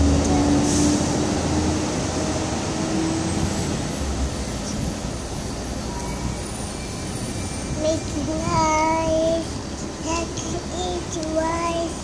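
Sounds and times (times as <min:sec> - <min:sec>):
vehicle road and engine noise: 0:00.0 - 0:12.0.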